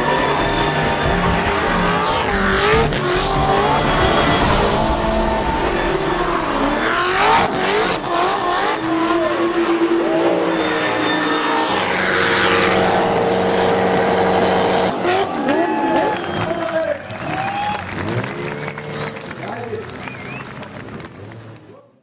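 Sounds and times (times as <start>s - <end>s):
car engine revving: 0.0s - 21.7s
tyre squeal: 10.0s - 12.5s.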